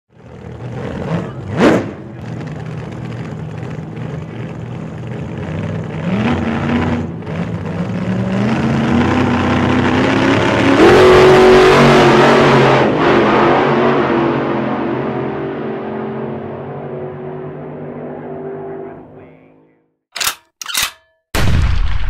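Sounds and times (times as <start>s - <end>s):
boat engine running: 0.1s - 6.1s.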